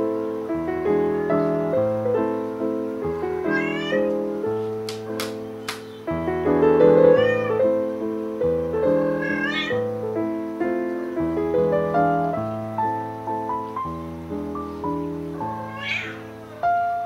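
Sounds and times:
slow keyboard music: 0:00.0 - 0:17.0
cat meowing: 0:03.4 - 0:04.2, 0:07.0 - 0:07.6, 0:09.0 - 0:09.9, 0:15.5 - 0:17.0.

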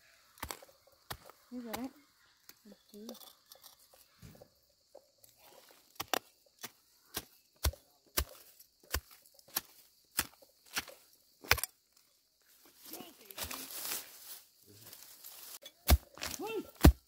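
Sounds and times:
hoe chopping into soil: 0:06.0 - 0:11.7, 0:15.7 - 0:17.0.

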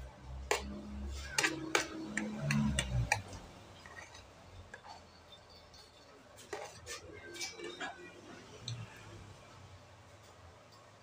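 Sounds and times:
cutlery scraping a ceramic plate: 0:00.5 - 0:08.6.

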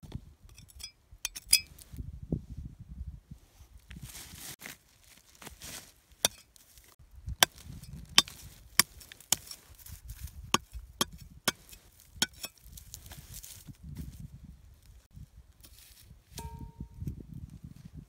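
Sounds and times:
machete chopping into hard soil: 0:07.4 - 0:09.6.

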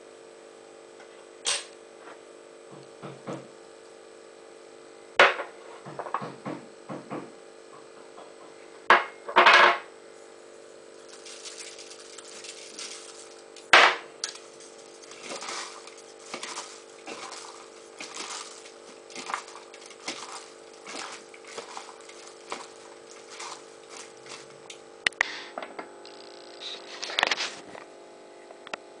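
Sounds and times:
faint steady hum: 0:00.0 - 0:29.0
chopsticks tossing salad: 0:11.0 - 0:24.8.

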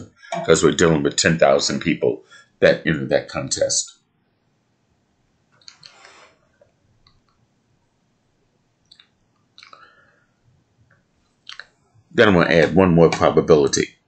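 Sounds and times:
rustling or mouth sounds: 0:05.6 - 0:06.5, 0:08.9 - 0:09.8
faint clicks: 0:08.8 - 0:09.9.

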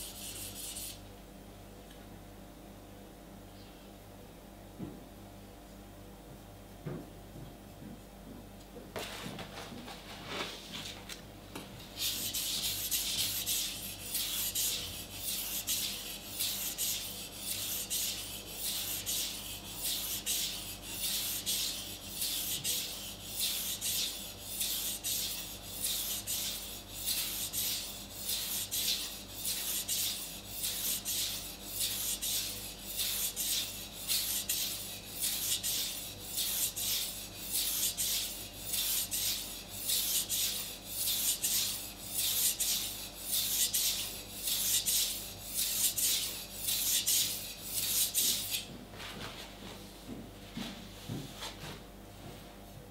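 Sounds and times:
knife rasping on sharpening stone: 0:12.2 - 0:48.6.

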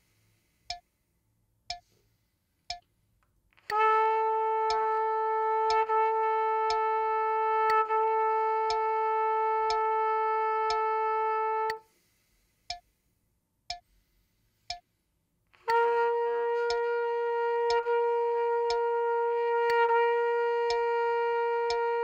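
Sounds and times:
metronome clicking: 0:01.7 - 0:02.0, 0:02.6 - 0:11.8, 0:12.7 - 0:12.9, 0:13.7 - 0:14.0, 0:14.6 - 0:14.9, 0:15.6 - 0:22.0
trumpet long tones: 0:03.6 - 0:11.9, 0:15.5 - 0:22.0.

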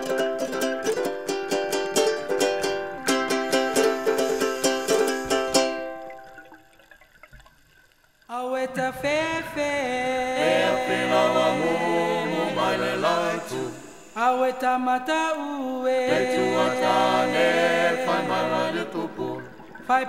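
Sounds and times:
group of voices singing in harmony: 0:08.4 - 0:20.0.

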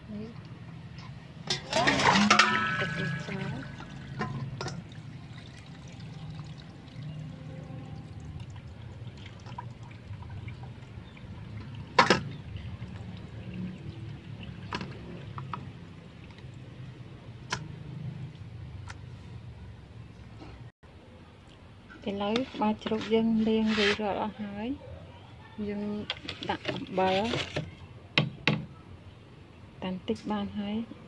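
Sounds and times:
water pouring into steel basin: 0:01.7 - 0:15.4.

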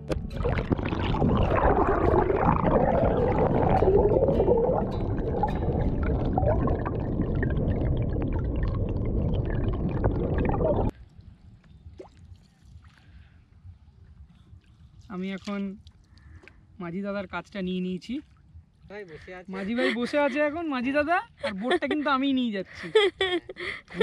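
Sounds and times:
muffled water gurgling and sloshing: 0:00.0 - 0:16.0
faint water lapping: 0:10.8 - 0:20.6.

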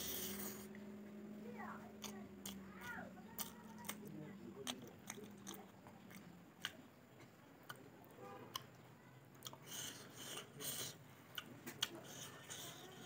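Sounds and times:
chewing: 0:01.8 - 0:13.0.

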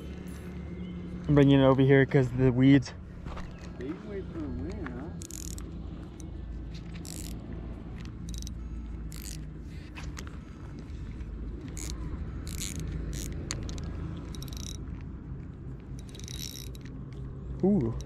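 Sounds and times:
scratchy clicks and rasps: 0:03.4 - 0:18.0
fishing reel gears whirring: 0:05.1 - 0:10.3, 0:11.6 - 0:14.9, 0:16.0 - 0:17.0.

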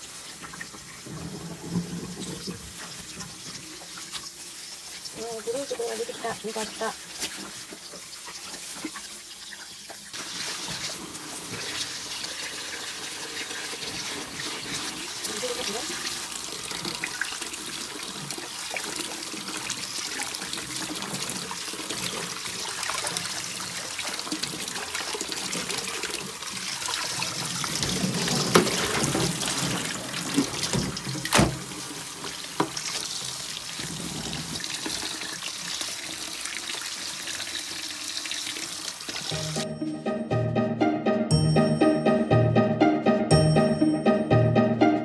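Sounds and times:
music: 0:39.3 - 0:45.0.

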